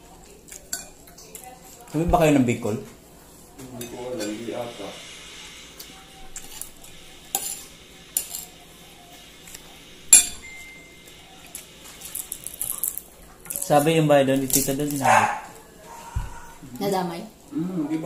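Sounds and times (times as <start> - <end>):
cutlery clinking on plates: 0.5 - 1.8, 3.8 - 4.5, 7.4 - 8.6, 10.1 - 10.8.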